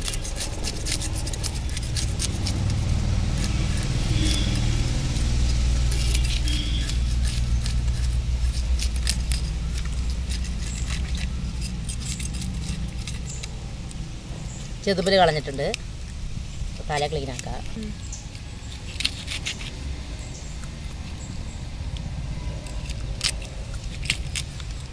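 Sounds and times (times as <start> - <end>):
knife scraping fish scales: 0.0 - 13.6, 16.8 - 19.8, 22.6 - 24.9
low rumble: 0.0 - 16.9.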